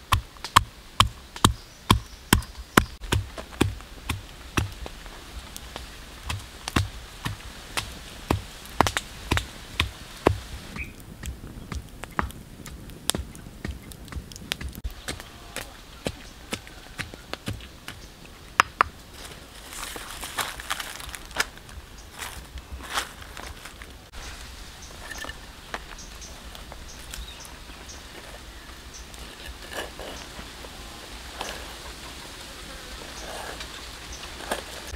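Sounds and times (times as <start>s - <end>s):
rhythmic pounding knocks: 0.0s - 4.8s
campfire crackling and popping: 0.0s - 32.4s
faint bird chirps: 10.7s - 11.0s, 24.2s - 29.2s.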